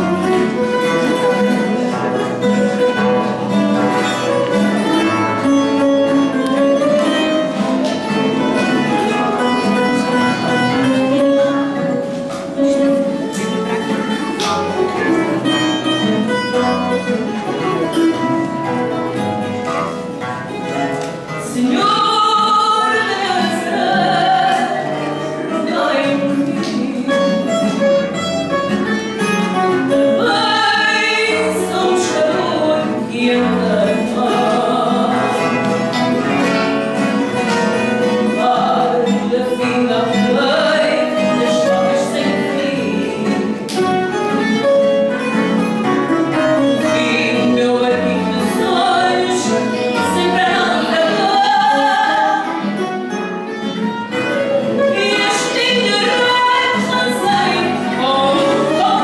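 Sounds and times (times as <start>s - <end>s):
classical guitar: 0.0s - 59.0s
twelve-string guitar: 0.0s - 59.0s
woman singing long notes: 21.4s - 27.5s, 30.2s - 35.9s, 38.1s - 43.6s, 46.8s - 52.7s.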